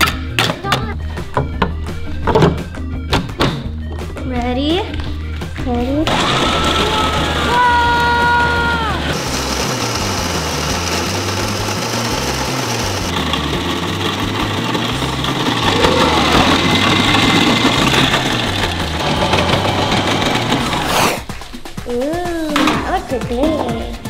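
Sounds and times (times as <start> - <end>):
ice machine motor grinding: 6.0 - 21.4
shaved ice rattling: 6.1 - 21.0.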